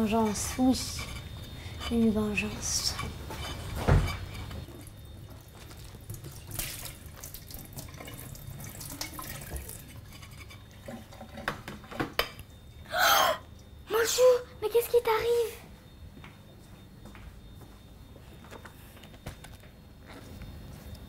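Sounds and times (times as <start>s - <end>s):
dishes clinking: 0.2s - 4.7s
water running from tap into sink: 6.0s - 10.2s.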